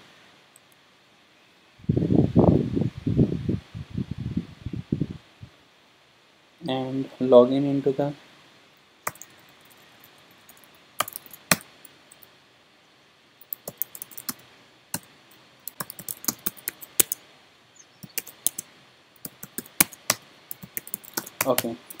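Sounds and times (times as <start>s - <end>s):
typing on keyboard: 9.1s - 9.3s, 10.5s - 11.6s, 13.4s - 14.4s, 15.7s - 17.2s, 18.0s - 18.6s, 19.2s - 22.0s.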